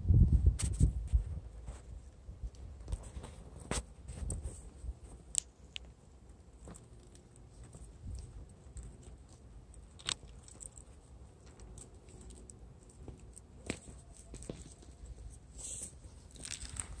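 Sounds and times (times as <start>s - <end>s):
loose stones clicking: 5.0s - 17.0s.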